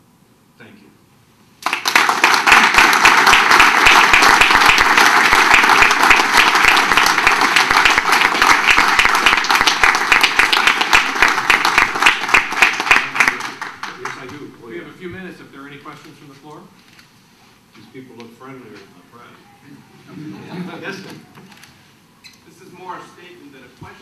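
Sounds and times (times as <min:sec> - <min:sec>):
audience applauding: 0:01.6 - 0:14.5.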